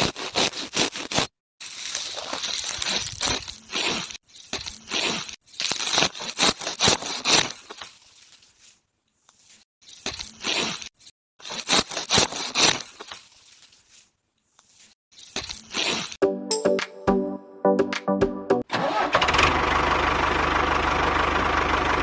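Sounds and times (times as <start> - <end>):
grass rustling and tearing: 0.0 - 16.2.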